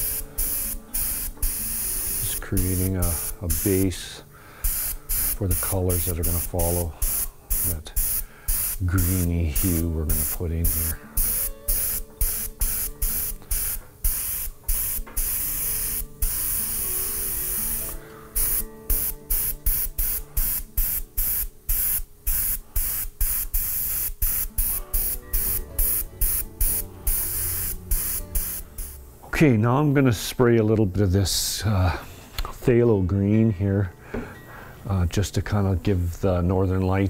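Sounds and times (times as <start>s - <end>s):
airbrush spraying in hissing bursts: 0.0s - 29.0s.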